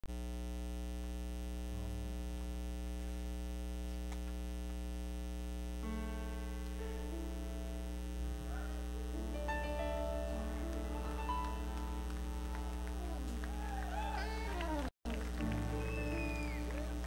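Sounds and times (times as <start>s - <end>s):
electrical mains hum: 0.1s - 17.0s
held keyboard notes: 5.8s - 17.0s.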